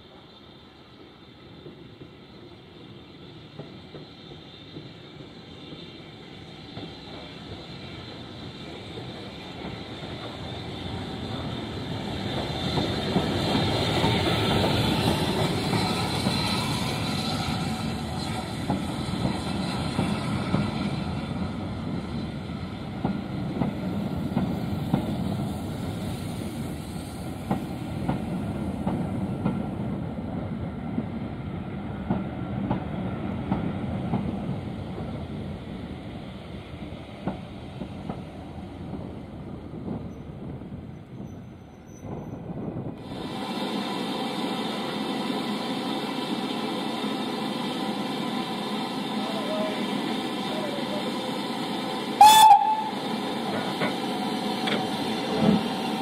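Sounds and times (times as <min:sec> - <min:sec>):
steam locomotive passing: 0:00.0 - 0:56.0
train wheels clicking over rail joints: 0:01.0 - 0:20.9, 0:51.5 - 0:56.0.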